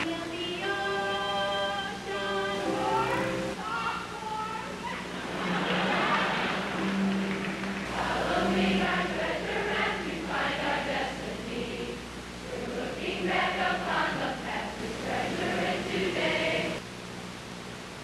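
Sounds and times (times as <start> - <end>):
group singing in unison: 7.9 - 16.8.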